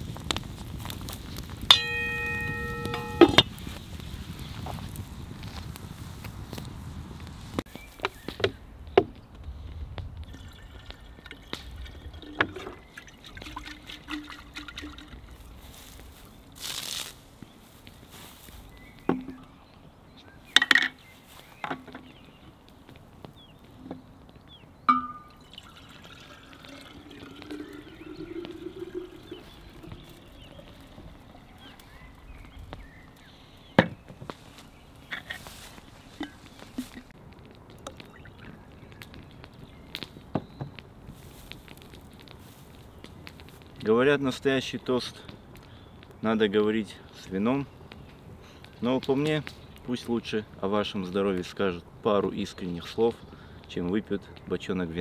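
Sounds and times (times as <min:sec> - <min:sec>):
water pouring into glass carafe: 0:10.3 - 0:15.5, 0:25.2 - 0:31.2.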